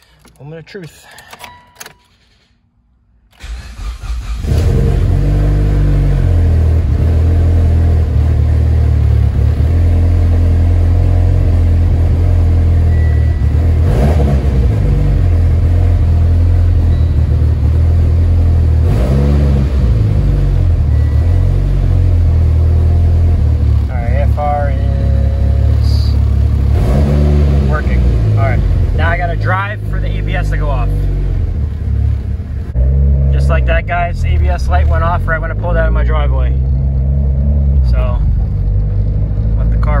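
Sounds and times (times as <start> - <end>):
engine starter cranking: 3.3 - 4.7
car engine idling: 3.4 - 40.0.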